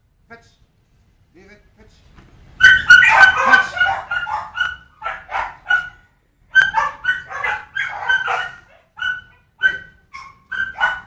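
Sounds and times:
dog barking: 2.6 - 11.0.

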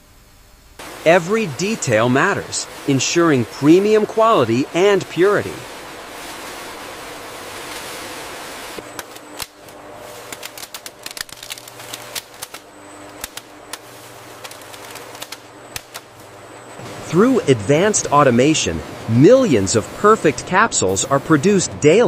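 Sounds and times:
low machine hum: 0.0 - 22.0
machine hissing: 0.8 - 22.0
rapid machine clicking: 10.3 - 12.6, 13.2 - 13.8, 14.4 - 16.1.

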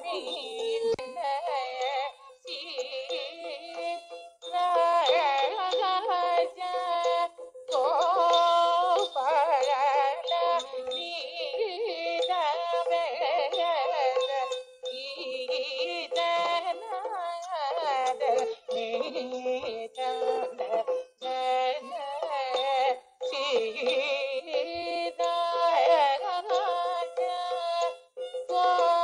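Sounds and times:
person singing ornamented melody: 0.0 - 29.0.

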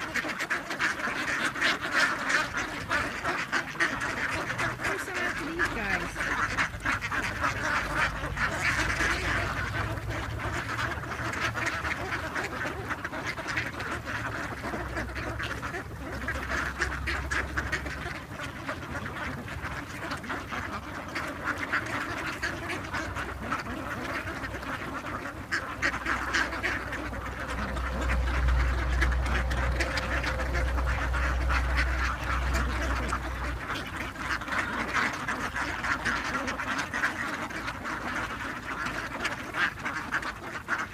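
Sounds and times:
ducks quacking: 0.0 - 40.9
low rumble: 5.5 - 36.5.

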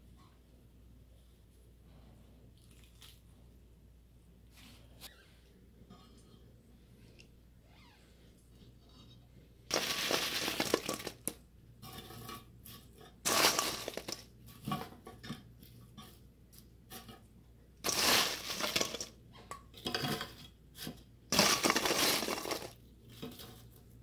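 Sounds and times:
fries rustling and clinking: 9.7 - 16.2, 16.9 - 24.0.

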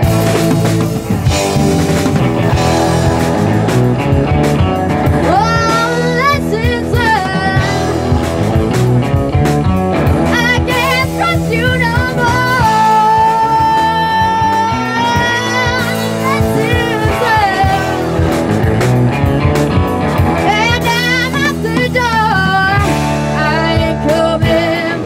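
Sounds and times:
live rock band playing: 0.0 - 25.0
woman singing lead vocal: 5.2 - 8.1, 10.3 - 18.4, 20.4 - 25.0.

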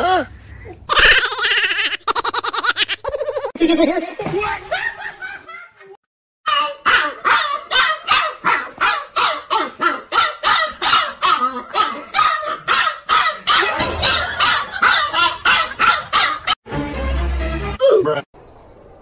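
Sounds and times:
puppy barking high yaps: 6.5 - 16.6.

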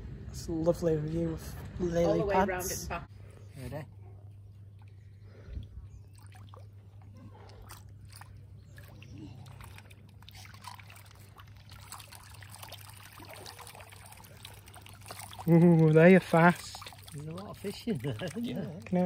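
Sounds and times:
fish splashing at water surface: 6.0 - 19.0.

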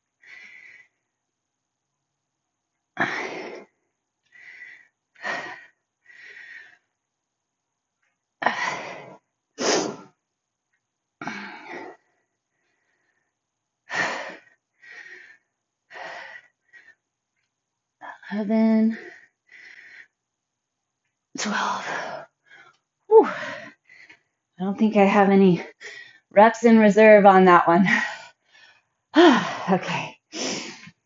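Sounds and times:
woman breathing hard: 0.2 - 1.1, 3.0 - 7.0, 8.4 - 10.2, 11.2 - 17.1, 18.9 - 20.2, 21.4 - 24.5, 27.9 - 29.7.

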